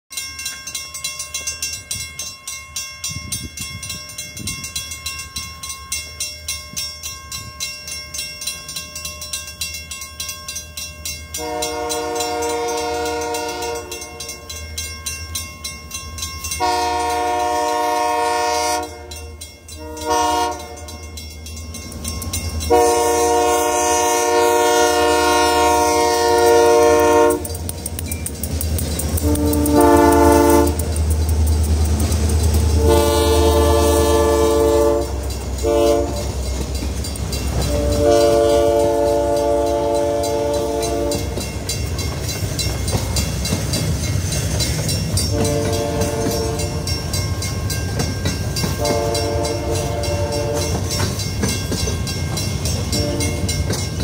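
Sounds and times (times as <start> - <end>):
crossing bell dinging rapidly: 0.1 - 54.0
locomotive engine rumble: 10.9 - 54.0
locomotive air horn blasts: 11.4 - 14.4, 16.6 - 21.0, 22.7 - 27.5, 29.2 - 30.9, 32.8 - 36.4, 37.6 - 41.4, 45.3 - 47.0, 48.8 - 51.0, 52.9 - 53.7.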